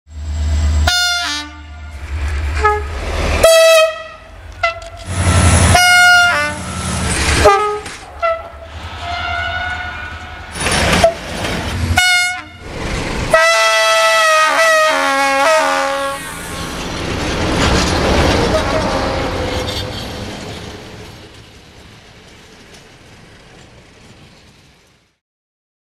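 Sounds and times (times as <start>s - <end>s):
rumble of passing trains: 0.1s - 25.2s
locomotive horn blasts: 0.8s - 10.4s, 12.0s - 12.6s, 13.3s - 16.3s, 18.4s - 19.7s.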